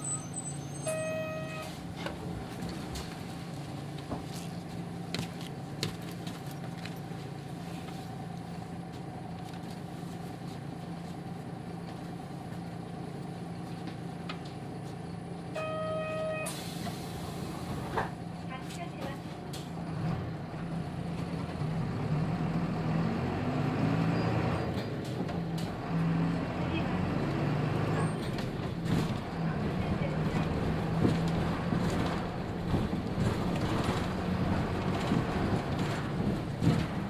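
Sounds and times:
bus diesel engine idling: 0:00.0 - 0:23.0, 0:24.5 - 0:37.0
short electronic beep: 0:15.6 - 0:16.5.

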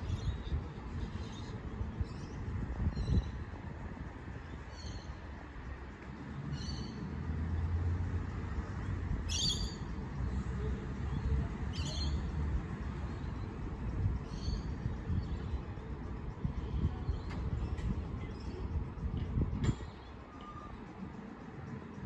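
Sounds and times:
steady low rumble: 0:12.2 - 0:22.0.

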